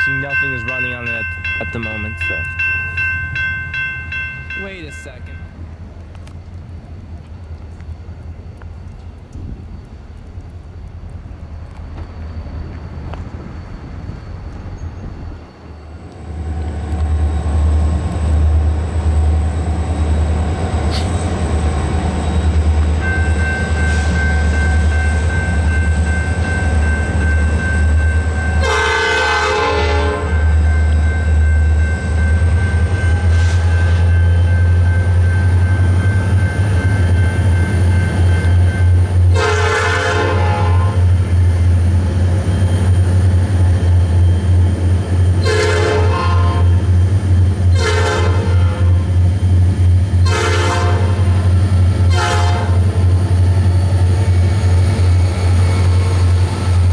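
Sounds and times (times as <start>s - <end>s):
diesel locomotive rumbling: 0.0s - 56.9s
locomotive air horn blast: 28.6s - 30.3s, 39.3s - 41.0s, 45.4s - 46.7s, 47.7s - 48.9s, 50.2s - 51.3s, 52.1s - 52.8s.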